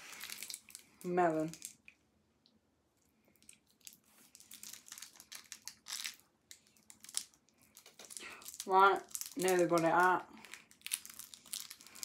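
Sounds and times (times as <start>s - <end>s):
plastic candy wrapper crinkling: 0.0s - 2.0s, 3.3s - 12.0s.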